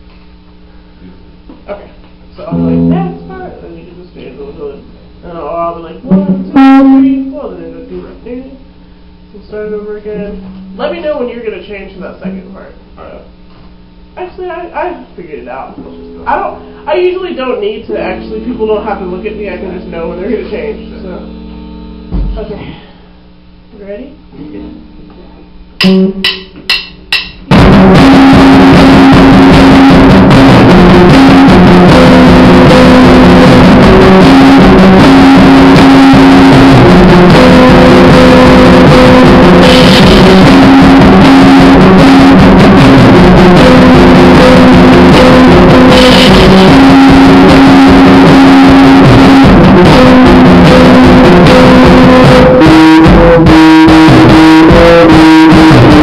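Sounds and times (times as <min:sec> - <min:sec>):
electric guitar and drums jamming: 0:02.5 - 0:03.6, 0:06.0 - 0:07.3, 0:10.1 - 0:11.6, 0:14.8 - 0:22.6, 0:25.8 - 0:56.0.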